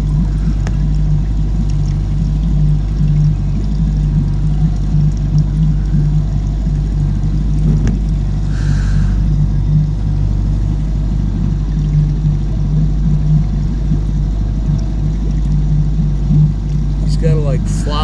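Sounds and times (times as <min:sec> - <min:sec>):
boat engine idling: 0:00.0 - 0:18.0.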